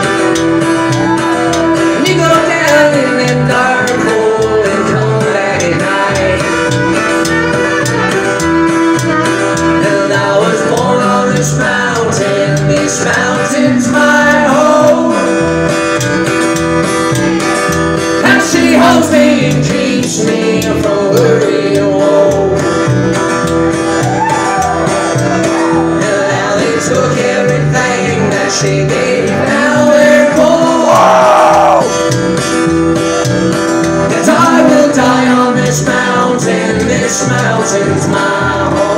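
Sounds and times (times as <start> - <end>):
acoustic guitar: 0.0 - 38.9
upright bass: 0.0 - 38.9
person singing: 1.0 - 15.4, 18.2 - 22.9, 24.6 - 32.0, 34.1 - 38.9
fiddle: 6.4 - 10.4.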